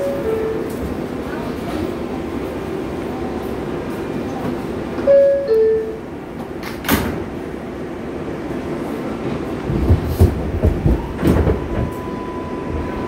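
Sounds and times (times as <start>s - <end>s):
train humming: 0.0s - 13.0s
two-note door chime: 5.1s - 6.0s.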